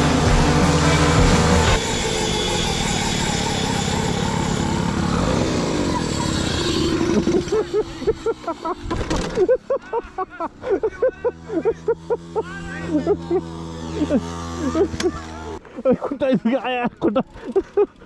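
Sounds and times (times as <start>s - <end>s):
small motorbike engine running hard: 0.0s - 18.0s
voices: 5.0s - 18.0s.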